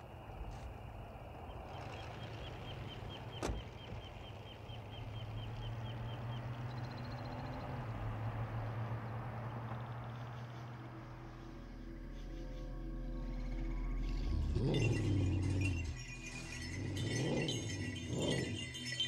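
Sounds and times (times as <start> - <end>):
night insects chirping: 0.0 - 19.0
truck engine running low: 0.0 - 19.0.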